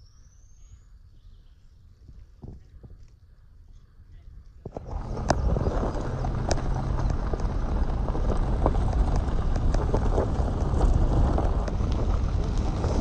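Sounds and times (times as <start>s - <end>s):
wind buffeting microphone: 4.6s - 13.0s.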